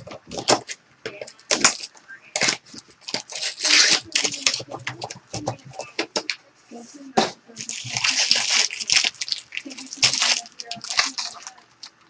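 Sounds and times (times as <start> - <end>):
foil wrappers crackling: 0.0 - 6.3, 7.5 - 12.0.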